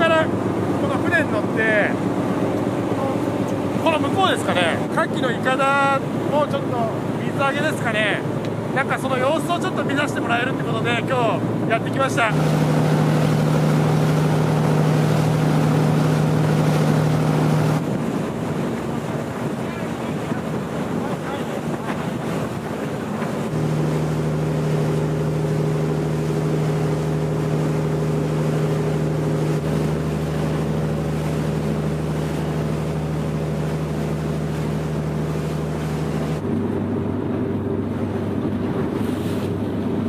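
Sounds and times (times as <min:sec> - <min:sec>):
boat engine running: 0:00.0 - 0:40.0
water rushing: 0:00.0 - 0:40.0
wind on microphone: 0:12.3 - 0:40.0.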